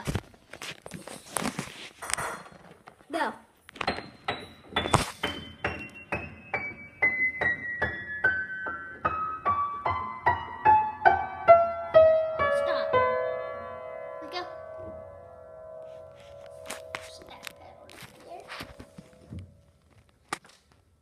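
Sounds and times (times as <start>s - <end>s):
piano descending notes: 3.8s - 17.8s.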